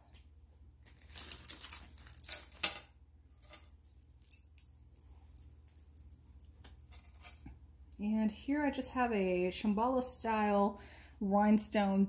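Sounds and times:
jewelry jingling and clinking: 1.0 - 7.6.

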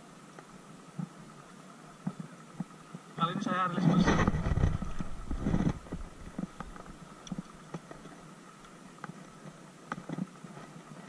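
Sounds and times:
soft clicks and taps of fishing tackle: 0.3 - 3.1, 5.8 - 10.8.

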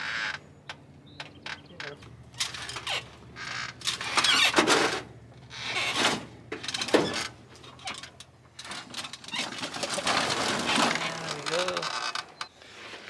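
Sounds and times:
metal ramps clanking and rattling: 5.7 - 11.8.

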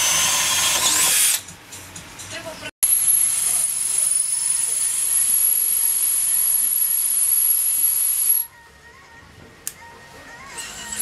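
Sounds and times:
cordless drill drilling metal: 0.0 - 1.4.

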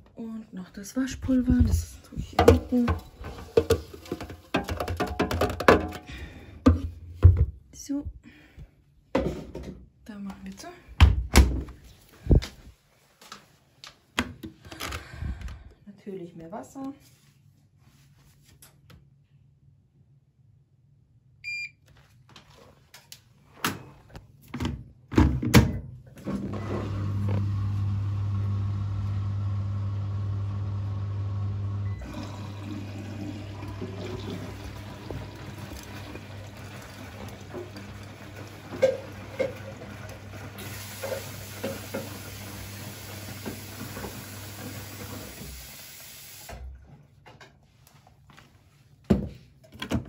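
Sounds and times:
washing machine beep: 21.4 - 21.8, 31.8 - 32.2
water inlet valve humming: 27.0 - 46.6
water filling drum: 31.8 - 46.6.

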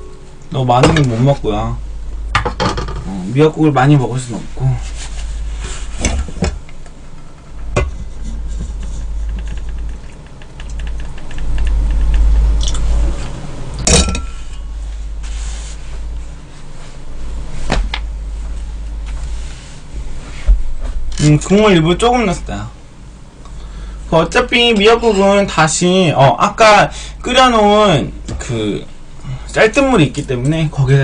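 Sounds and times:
gas burner low rumble: 0.0 - 31.0
metal pot clanking: 7.7 - 8.7, 13.8 - 14.7.

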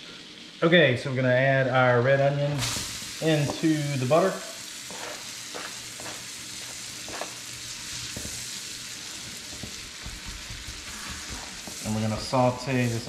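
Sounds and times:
onion sizzling in butter: 0.0 - 13.0
spatula knocking and scraping pan: 4.9 - 8.5, 9.3 - 12.8.

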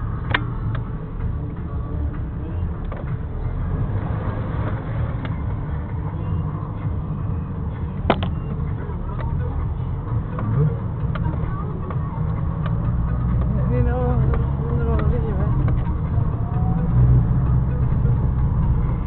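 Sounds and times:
car rumbling over dirt track: 0.0 - 19.0.

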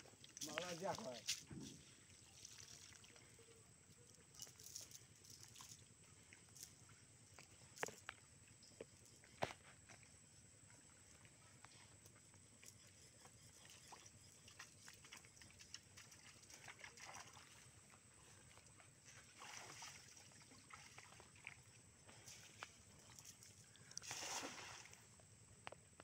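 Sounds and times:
feet splashing through water: 0.0 - 3.3, 14.5 - 25.1
small ticks: 4.0 - 10.0, 11.1 - 17.2.

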